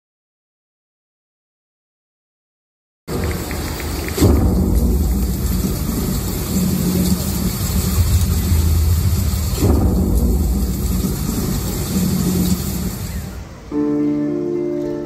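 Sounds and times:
low rolling thunder rumble: 3.1 - 13.6
thunderclap: 3.1 - 13.6
rain hiss: 3.1 - 15.0.

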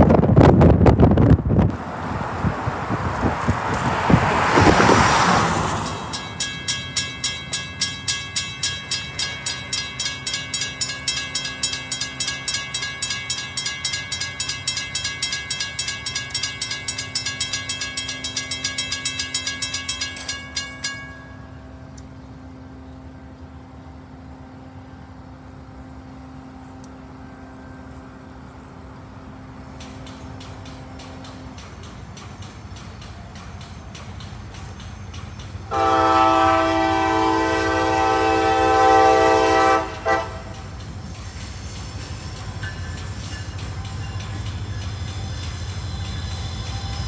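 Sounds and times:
crossing warning bell ringing: 5.1 - 22.0, 29.6 - 47.0.

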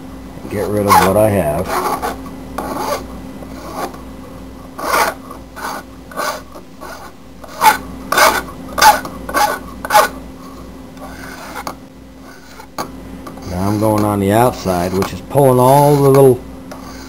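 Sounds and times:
hand file rasping on metal: 0.6 - 3.0, 4.8 - 10.2, 11.0 - 12.7, 13.4 - 17.0.

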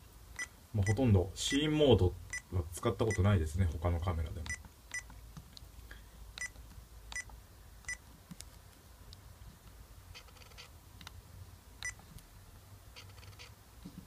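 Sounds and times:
camera button beeps: 11.8 - 12.0.

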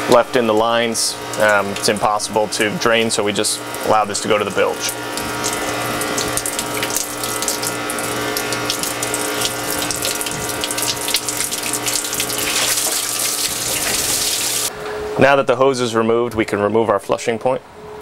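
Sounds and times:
water pouring and splashing: 3.6 - 14.7.

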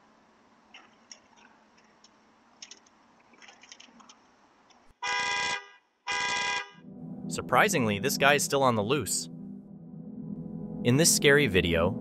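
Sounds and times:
truck horn honking: 5.0 - 6.8.

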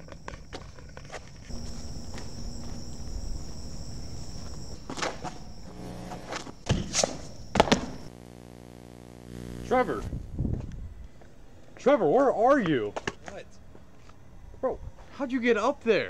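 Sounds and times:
footsteps scuffing on pavement: 0.0 - 8.0
steady high-pitched whine: 0.0 - 16.0.

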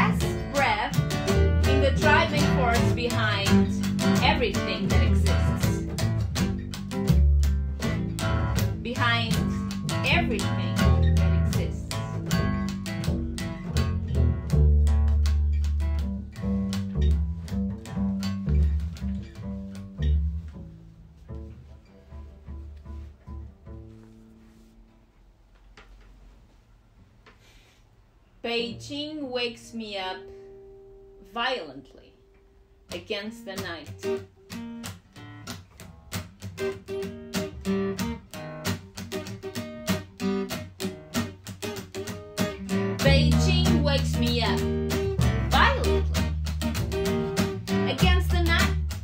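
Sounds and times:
bass line: 0.0 - 24.0, 42.5 - 49.0
guitar picking single notes: 0.0 - 24.9, 28.6 - 49.0.

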